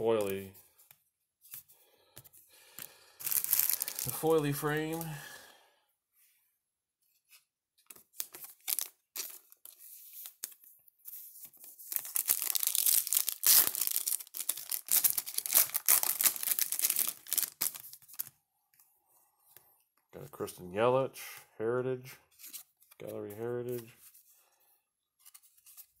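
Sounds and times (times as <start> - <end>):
wrapper tearing and crinkling: 3.2 - 5.1, 8.2 - 9.5, 11.9 - 18.3.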